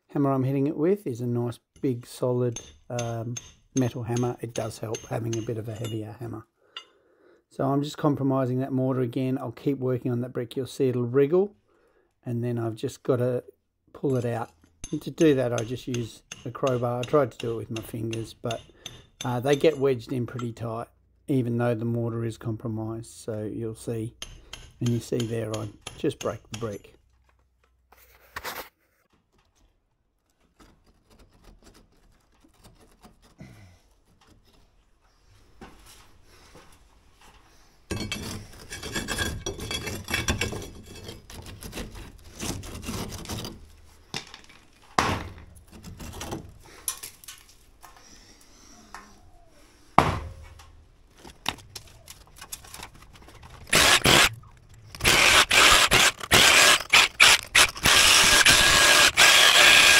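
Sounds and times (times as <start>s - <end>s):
brick scraping against mortar: 37.9s - 44.0s, 53.4s - 59.9s
cordless drill drilling mortar: 53.7s - 59.9s.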